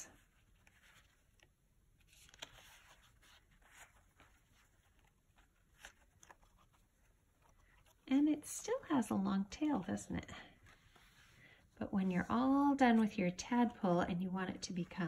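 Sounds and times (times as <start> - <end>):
cardstock rustling and clicking: 0.2 - 8.0.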